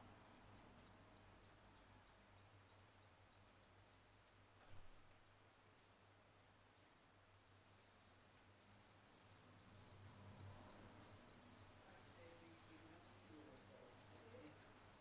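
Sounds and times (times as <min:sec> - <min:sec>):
cricket chirping: 0:07.4 - 0:14.9.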